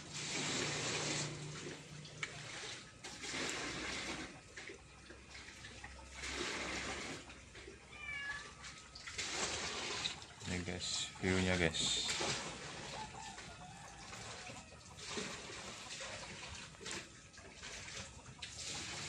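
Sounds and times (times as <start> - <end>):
cat meowing: 7.9 - 8.6.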